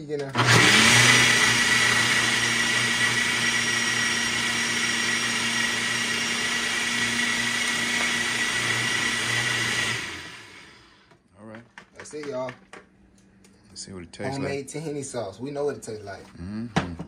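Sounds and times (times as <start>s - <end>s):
blender motor whine: 0.3s - 11.1s.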